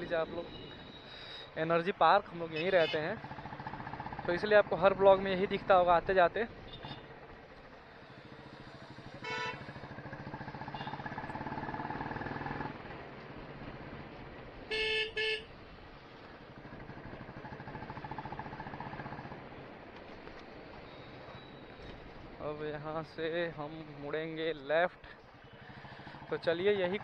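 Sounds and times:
motorcycle engine running: 0:03.2 - 0:05.8, 0:06.6 - 0:14.1, 0:16.3 - 0:19.5, 0:25.3 - 0:27.0
vehicle horn honking: 0:09.2 - 0:09.6, 0:14.7 - 0:15.5.

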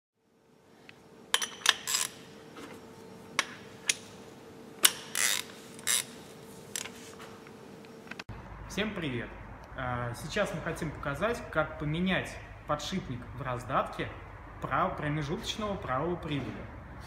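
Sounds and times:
faint steady hum: 0:00.2 - 0:17.0
metal tools clinking: 0:01.3 - 0:02.2.

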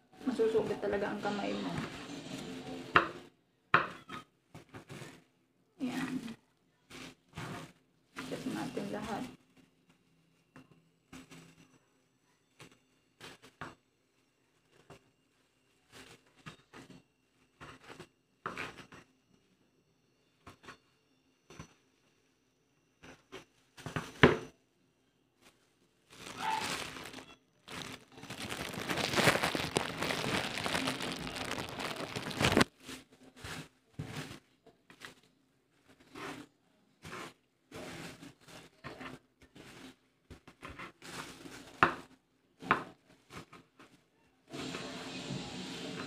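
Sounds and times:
dry material crinkling and rustling: 0:00.2 - 0:02.7, 0:04.6 - 0:11.6, 0:14.5 - 0:18.0, 0:25.4 - 0:42.1.

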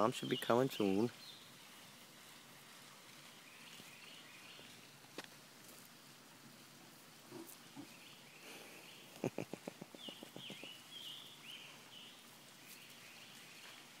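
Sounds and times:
small bird chirping: 0:00.0 - 0:02.0, 0:09.9 - 0:13.9
faint outdoor background noise: 0:00.0 - 0:14.0.

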